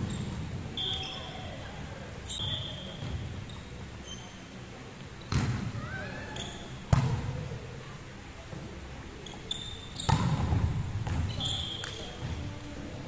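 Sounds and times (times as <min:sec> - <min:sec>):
sneakers squeaking on court floor: 0:00.0 - 0:01.5, 0:02.3 - 0:04.5, 0:06.4 - 0:07.1, 0:09.2 - 0:12.4.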